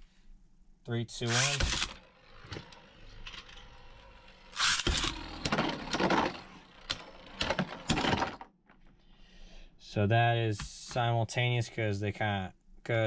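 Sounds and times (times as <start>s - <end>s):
spinning tops whirring and scraping: 1.2s - 8.4s
spinning tops clacking together: 4.5s - 8.0s.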